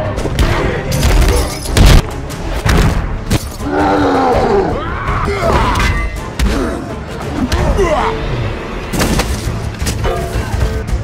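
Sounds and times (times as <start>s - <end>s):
film score music: 0.0s - 11.0s.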